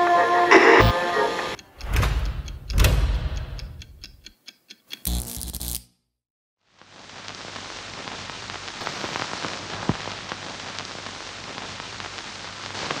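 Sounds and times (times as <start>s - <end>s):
crackling hiss with clicks: 4.9s - 5.9s, 6.6s - 13.0s.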